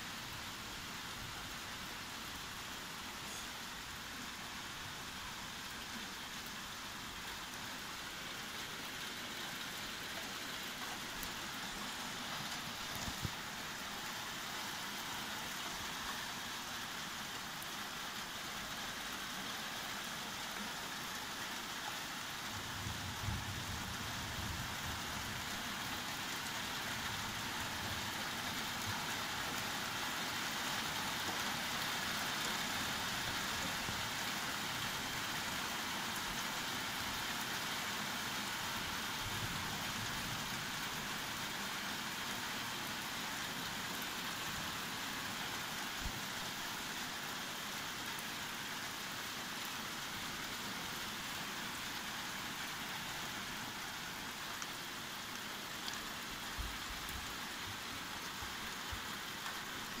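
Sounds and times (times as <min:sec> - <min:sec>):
rain on a window: 0:00.0 - 1:00.0
low rumble of thunder: 0:22.6 - 0:25.3.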